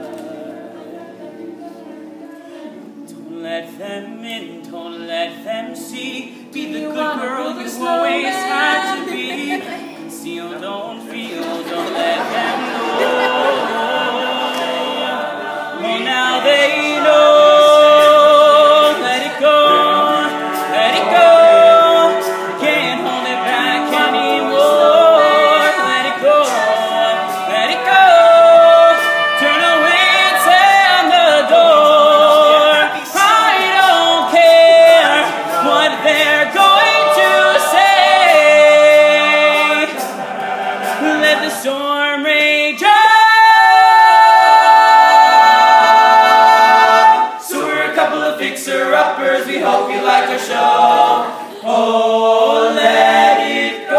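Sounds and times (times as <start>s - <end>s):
solo tenor voice singing: 0.0s - 40.0s
male a cappella group singing: 0.0s - 53.9s.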